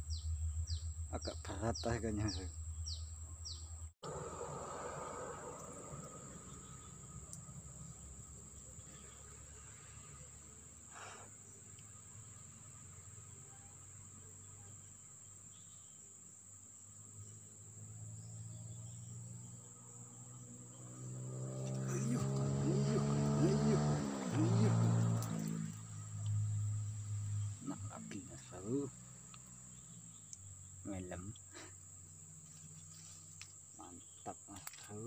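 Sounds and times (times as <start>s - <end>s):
low rumble: 0.0s - 8.0s
insects chirring: 0.0s - 35.0s.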